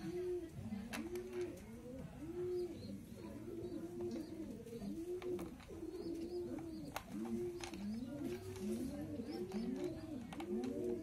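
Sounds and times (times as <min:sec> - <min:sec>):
pigeons cooing: 0:00.0 - 0:11.0
plastic clicking: 0:06.5 - 0:08.7, 0:09.4 - 0:10.9.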